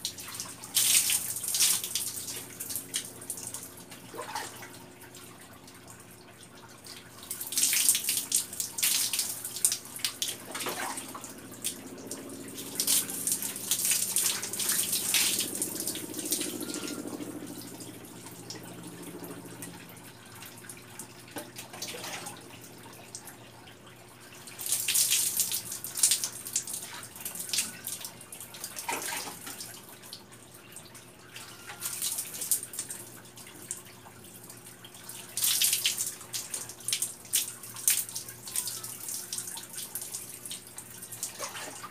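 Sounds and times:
water dripping: 0.0 - 41.9
water splashing from dipper: 7.3 - 16.8.

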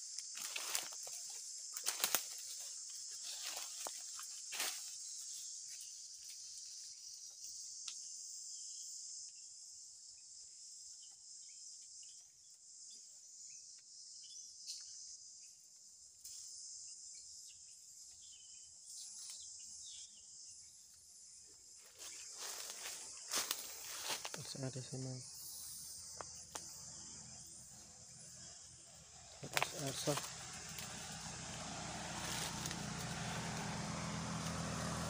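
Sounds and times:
high-pitched insect chorus: 0.0 - 35.0.

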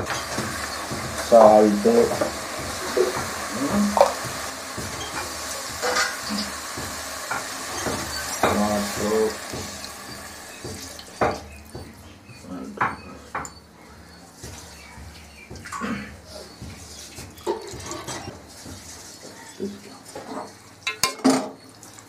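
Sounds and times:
knocks against a pot: 0.0 - 12.0
meat stirred in a metal pot: 0.0 - 22.0.

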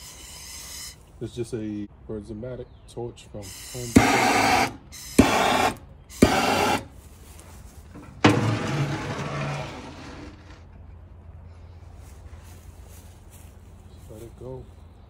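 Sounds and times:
metal ash pan scraping: 7.9 - 10.8.

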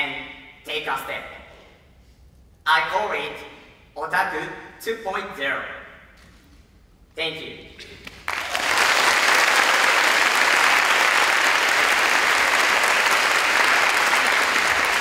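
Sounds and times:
large audience applauding: 8.1 - 15.0.

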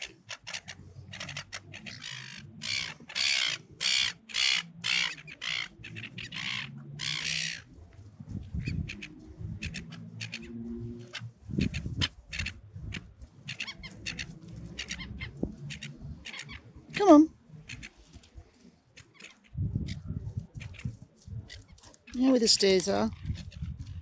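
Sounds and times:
gulls squawking: 0.0 - 7.7, 8.6 - 18.0.

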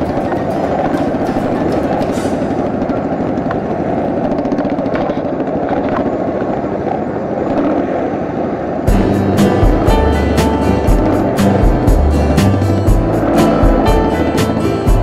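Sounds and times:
road and wind noise: 0.0 - 15.0
motorcycle engine running: 8.9 - 15.0.

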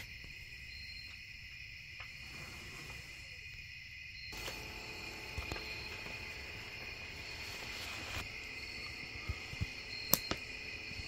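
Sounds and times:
night insects chorus: 0.0 - 11.0.

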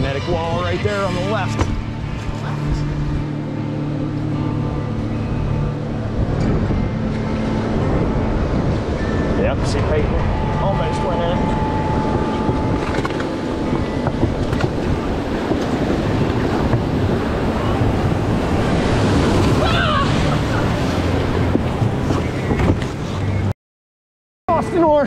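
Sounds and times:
whitewater rushing and splashing: 0.0 - 23.5.

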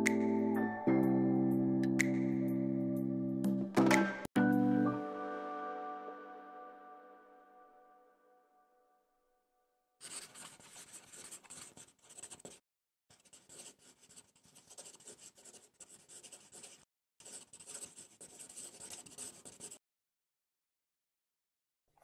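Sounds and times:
pen scratching on paper: 10.0 - 19.8.

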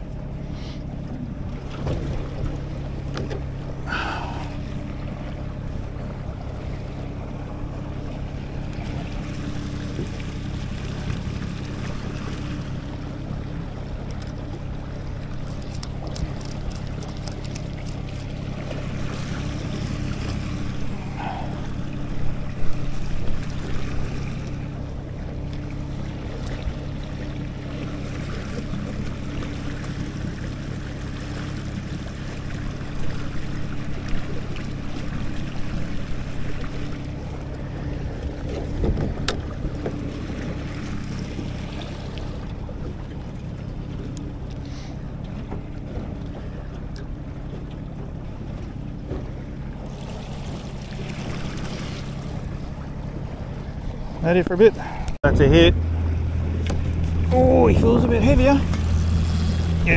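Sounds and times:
boat motor humming: 0.0 - 59.9
water wash: 0.0 - 59.9.

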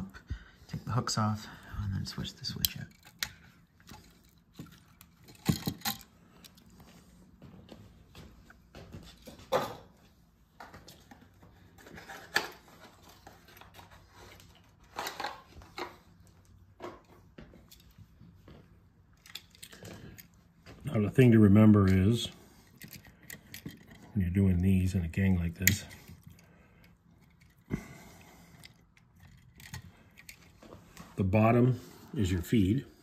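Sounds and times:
plastic and metal clicks and rattles: 2.5 - 6.6, 28.5 - 30.6.

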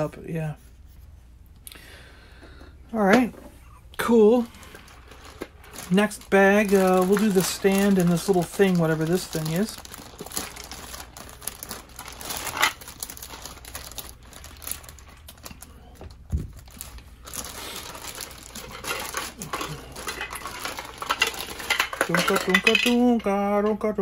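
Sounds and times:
plastic bag crinkling: 4.0 - 23.3.

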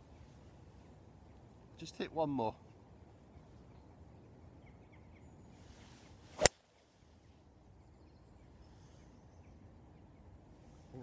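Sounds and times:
golf club swish: 5.7 - 6.7
golf ball impact crack: 6.3 - 6.6.

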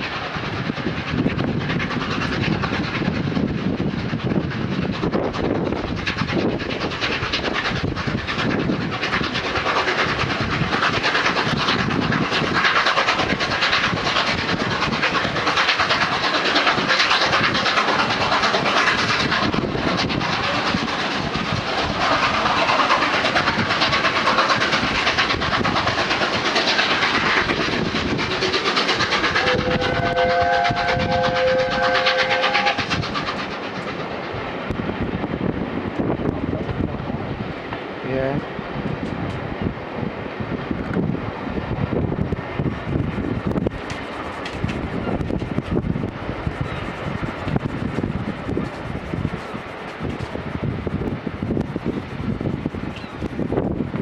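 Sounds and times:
steam locomotive exhaust: 0.0 - 39.8, 40.4 - 54.0
multi-note train whistle: 29.4 - 32.8.

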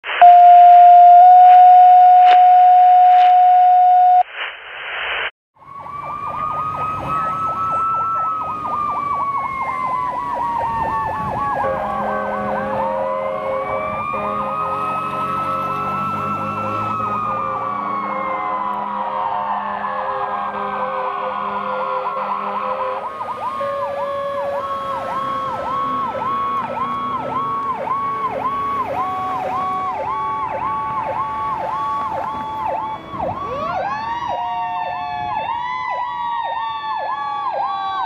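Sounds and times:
fire engine siren wailing: 0.0 - 4.2, 5.6 - 38.0
loud electronic tone: 0.0 - 5.3.

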